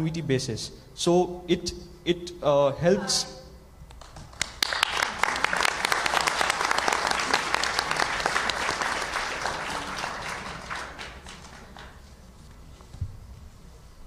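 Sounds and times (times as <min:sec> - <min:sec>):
audience applause: 0:04.2 - 0:12.1.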